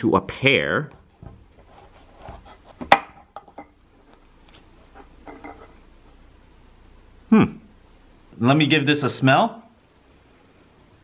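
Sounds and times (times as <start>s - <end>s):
knife knocking on wooden board: 0.9s - 1.5s
faint handling sounds: 0.9s - 6.2s.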